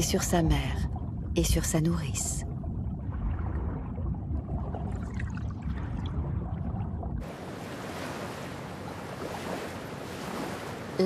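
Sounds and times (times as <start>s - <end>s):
underwater rumbling wash: 0.0s - 11.0s
sea waves: 3.1s - 11.0s
wind: 3.2s - 11.0s.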